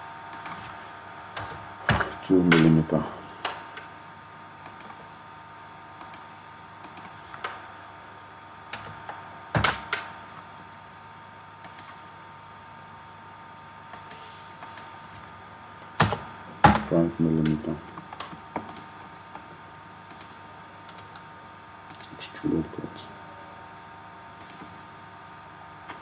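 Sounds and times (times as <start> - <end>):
faint steady hum: 0.0 - 26.0
mouse and keyboard clicks: 4.6 - 5.0.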